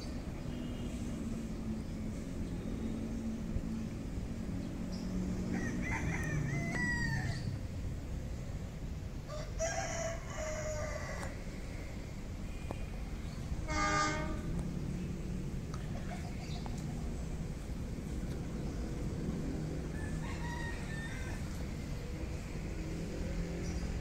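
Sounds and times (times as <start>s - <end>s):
rooster crowing: 5.5s - 7.6s, 9.3s - 11.4s, 19.8s - 21.9s
low steady rumble: 11.3s - 24.0s.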